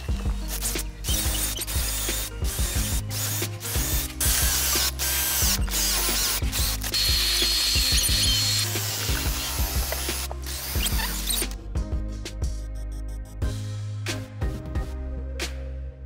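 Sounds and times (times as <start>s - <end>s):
cordless drill drilling: 0.0s - 11.5s
background music: 0.0s - 16.0s.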